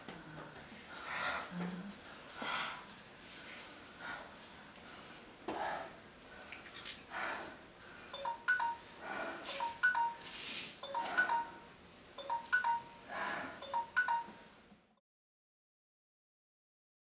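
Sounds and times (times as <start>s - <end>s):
bell-like notes: 8.2s - 8.9s, 9.5s - 12.9s, 13.6s - 14.3s.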